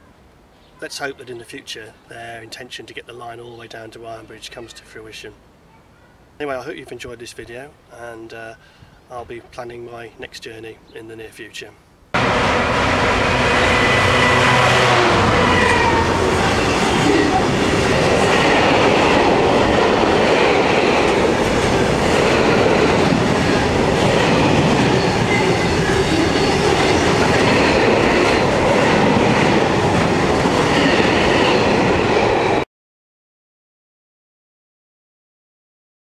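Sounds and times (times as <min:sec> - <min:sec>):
freight wagon wheels rumbling: 0:12.2 - 0:31.9
diesel locomotive engine passing: 0:12.2 - 0:32.6.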